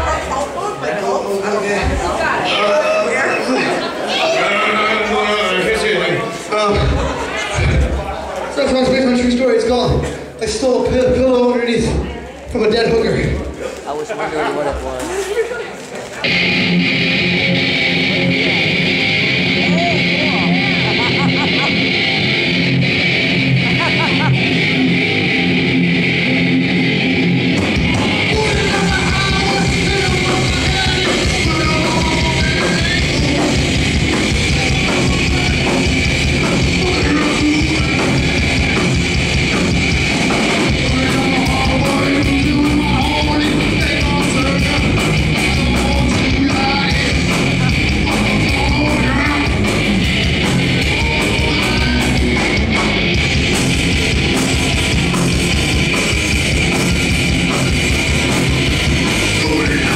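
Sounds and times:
drums: 1.7s - 2.4s, 6.4s - 13.9s, 16.2s - 59.9s
bass guitar: 16.2s - 59.9s
distorted electric guitar: 16.2s - 59.9s.

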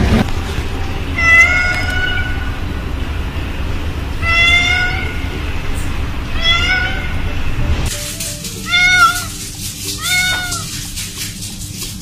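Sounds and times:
cat meowing: 1.2s - 2.5s, 4.2s - 5.3s, 6.4s - 7.2s, 8.6s - 9.4s, 10.0s - 10.8s.

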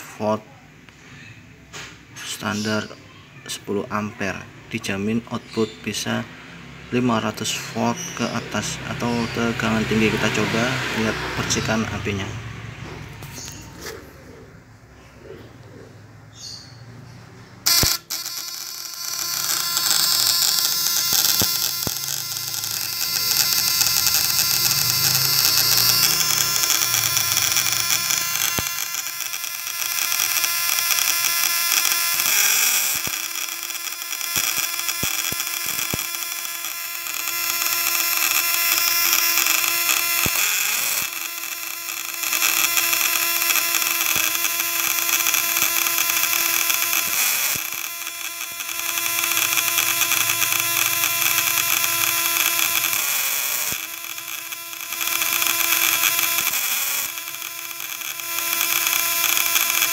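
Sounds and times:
high-voltage shocker buzzing: 7.2s - 13.6s, 17.6s - 59.9s
sharp clicks: 17.7s - 59.9s.

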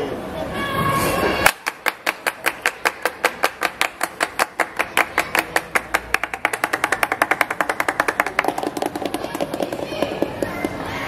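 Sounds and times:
hands clapping: 1.4s - 9.6s.

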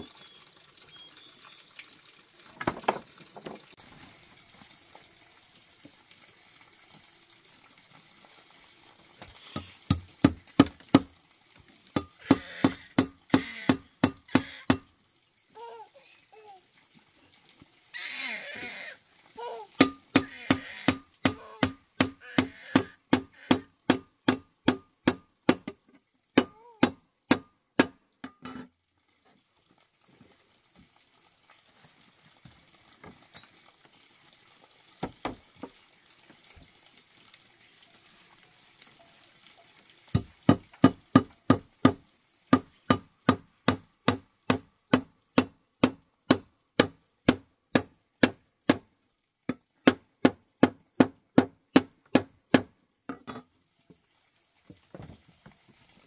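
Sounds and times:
hand tool knocks with ringing: 19.8s - 20.3s.

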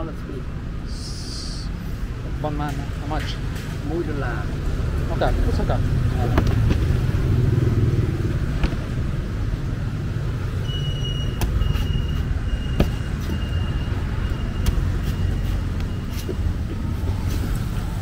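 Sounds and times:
low rumble of street traffic: 0.0s - 18.0s
sharp knocks: 8.5s - 9.0s.

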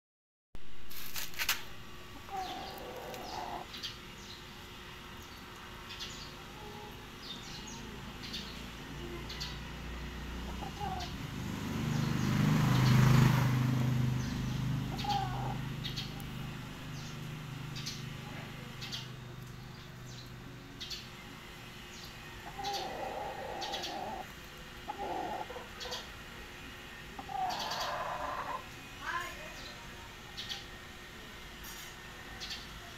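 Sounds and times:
rooster clucking: 2.2s - 3.7s, 10.4s - 11.2s, 14.9s - 16.2s, 22.4s - 24.3s, 24.9s - 26.1s, 27.2s - 28.7s.

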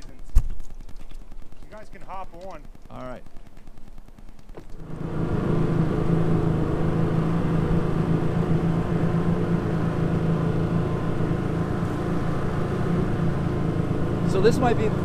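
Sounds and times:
boat engine droning: 3.7s - 15.0s.

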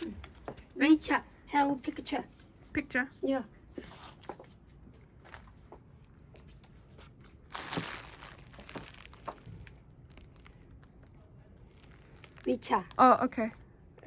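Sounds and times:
crinkling rustling handling noise: 5.2s - 13.6s.

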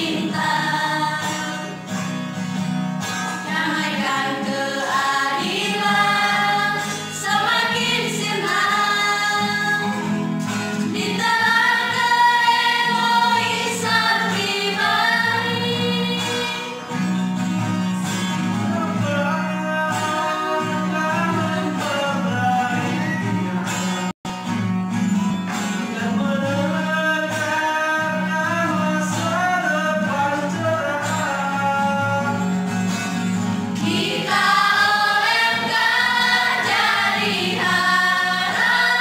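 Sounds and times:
youth choir singing a hymn: 0.0s - 1.8s, 3.5s - 10.2s, 10.8s - 16.9s, 33.8s - 39.0s.

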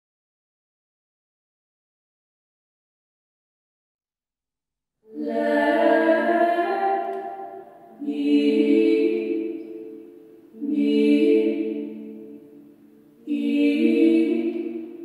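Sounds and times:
women singing in harmony: 5.1s - 15.0s.

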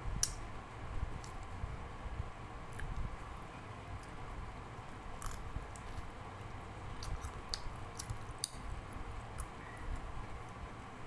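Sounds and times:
person chewing food: 4.8s - 6.2s, 6.9s - 10.1s.

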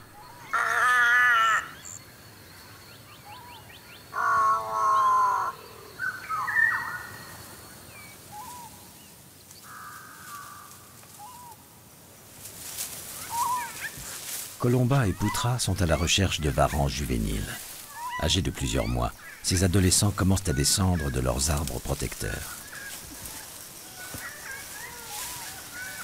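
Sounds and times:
crow cawing: 0.4s - 2.0s, 4.1s - 7.1s, 9.6s - 10.9s, 17.6s - 26.0s
dry brush rustling: 8.2s - 26.0s.

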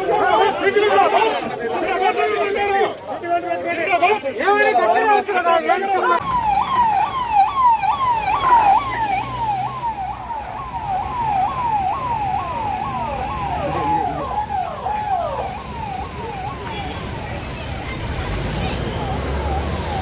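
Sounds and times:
passing cars: 0.0s - 20.0s
vehicle siren sweeping: 6.2s - 17.9s, 18.6s - 20.0s.

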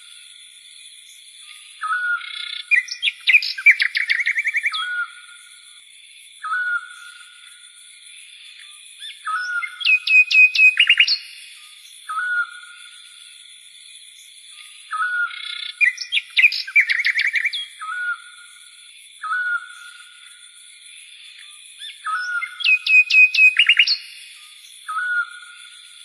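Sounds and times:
whistled chirping notes: 9.0s - 11.3s, 22.0s - 24.0s.

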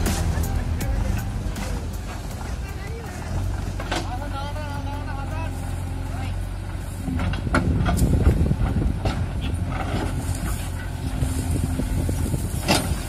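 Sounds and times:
diesel engine working: 0.0s - 13.0s
tractor idling: 0.0s - 13.0s.

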